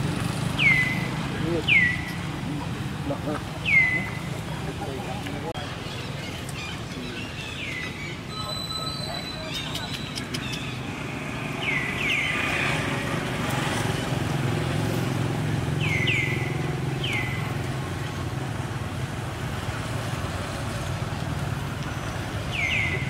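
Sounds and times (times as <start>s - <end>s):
vehicle engine humming: 0.0s - 5.6s.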